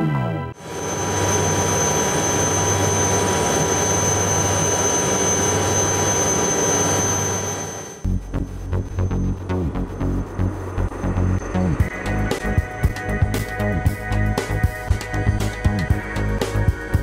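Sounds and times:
helicopter rotor noise: 0.6s - 8.1s
helicopter turbine whine: 0.6s - 16.8s.

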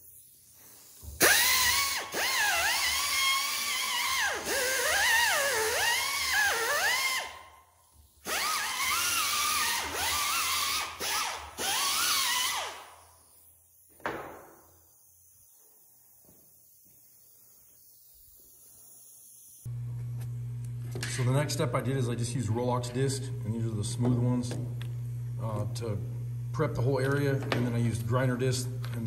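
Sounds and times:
air die grinder whining: 1.1s - 7.4s, 8.2s - 13.0s.

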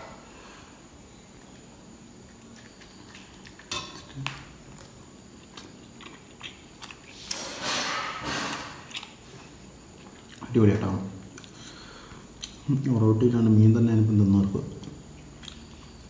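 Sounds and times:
chewing: 1.4s - 7.5s, 8.2s - 10.6s, 11.2s - 13.0s, 14.4s - 16.0s.

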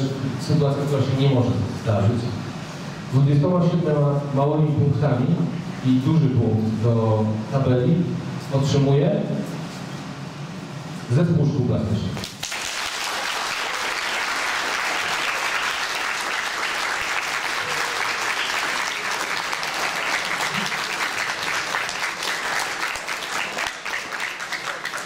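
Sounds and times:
audience applauding: 12.2s - 25.0s.

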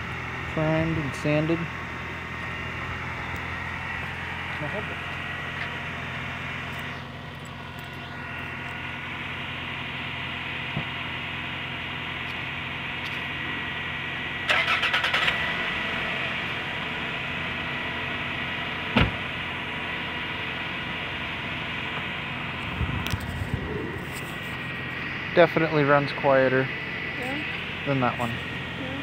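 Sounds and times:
car engine idling: 0.0s - 29.0s
second car idling: 0.0s - 29.0s
car starter cranking: 14.5s - 15.5s
car door shutting: 18.9s - 19.2s.

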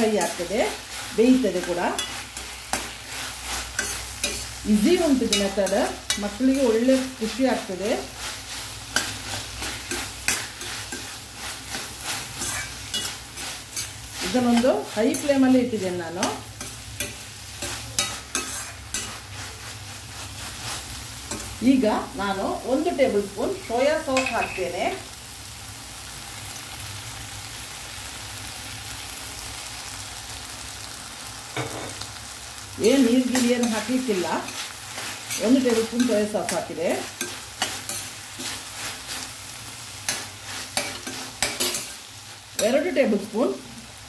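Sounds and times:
spoon scraping against pan: 0.0s - 22.1s, 22.8s - 24.8s, 32.8s - 43.3s
vegetables sizzling in a pan: 0.0s - 44.0s.

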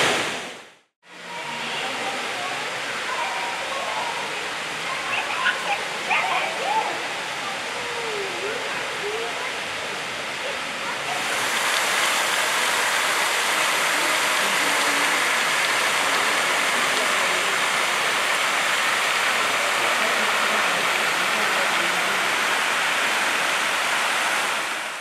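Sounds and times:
waterfall splashing onto rock: 0.0s - 0.6s, 11.0s - 25.0s.

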